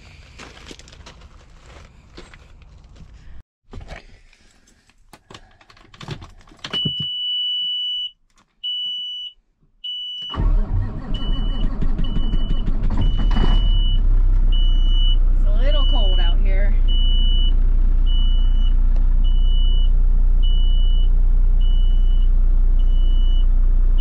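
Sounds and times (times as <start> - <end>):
diesel engine running: 10.3 - 24.0.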